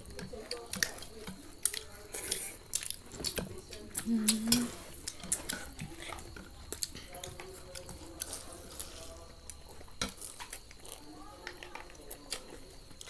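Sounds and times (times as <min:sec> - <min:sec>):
children chewing and slurping noodles: 0:00.0 - 0:13.0
faint voices: 0:00.0 - 0:13.0.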